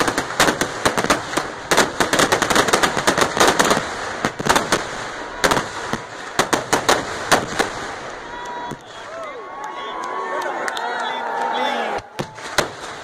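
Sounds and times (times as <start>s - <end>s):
fireworks crackling and banging: 0.0s - 9.3s, 12.0s - 13.0s.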